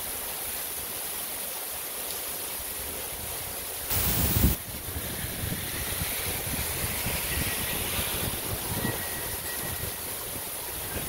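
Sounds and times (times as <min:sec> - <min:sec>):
heavy rain hissing: 0:00.0 - 0:11.0
wind buffeting microphone: 0:03.9 - 0:11.0.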